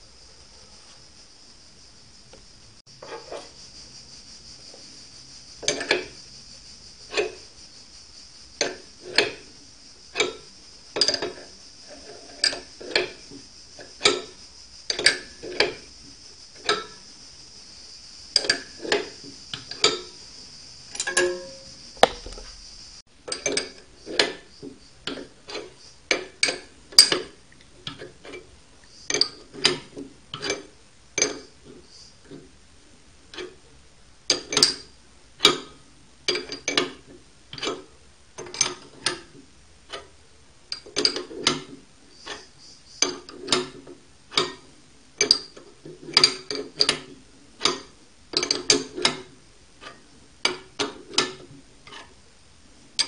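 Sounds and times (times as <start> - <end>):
metallic clicks and knocks: 7.1 - 7.4, 10.2 - 11.5, 20.9 - 22.5, 34.3 - 34.8, 45.2 - 52.1.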